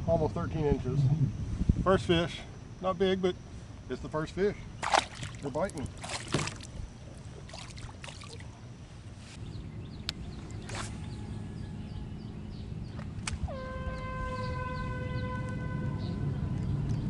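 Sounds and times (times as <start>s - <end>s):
steady low rumble: 0.0s - 13.6s
fishing rod swish: 10.6s - 11.1s
horn-like tone: 13.5s - 16.5s.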